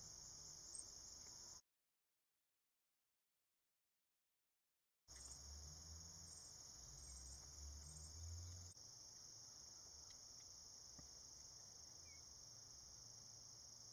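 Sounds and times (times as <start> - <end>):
high-pitched insect chorus: 0.0 - 1.6, 5.1 - 13.9
faint ticks: 0.7 - 1.4, 10.0 - 11.2.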